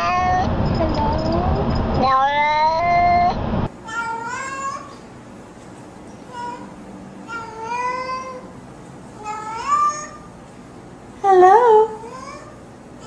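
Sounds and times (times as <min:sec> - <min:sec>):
cat meowing: 0:00.0 - 0:00.5, 0:02.0 - 0:03.4
loud cat meow: 0:00.0 - 0:00.5, 0:02.0 - 0:03.4.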